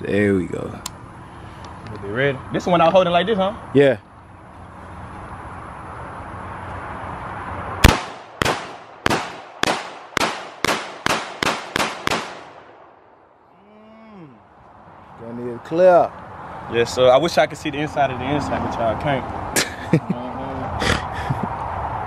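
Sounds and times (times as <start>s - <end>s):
rifle shots: 7.8s - 13.0s.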